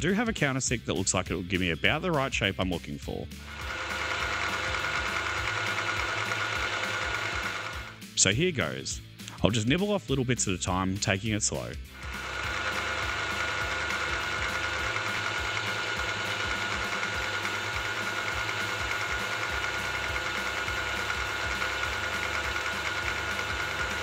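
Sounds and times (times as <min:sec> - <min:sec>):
milling machine whine: 0:03.3 - 0:08.2, 0:11.8 - 0:24.0.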